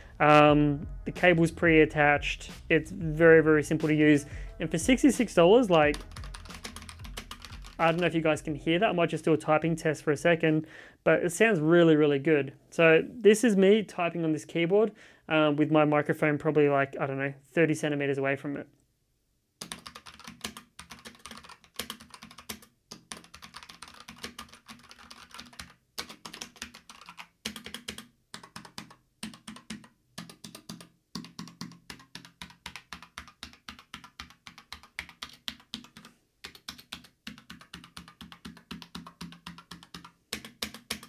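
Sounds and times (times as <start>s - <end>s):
fast typing on mechanical keyboard: 5.9s - 8.2s, 19.6s - 41.0s.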